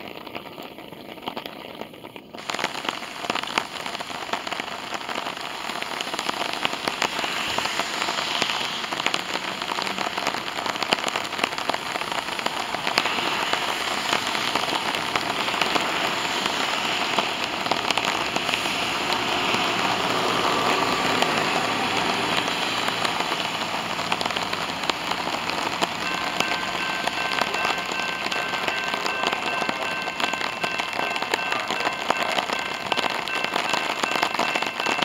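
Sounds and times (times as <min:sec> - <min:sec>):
steady rain falling: 0:00.0 - 0:35.0.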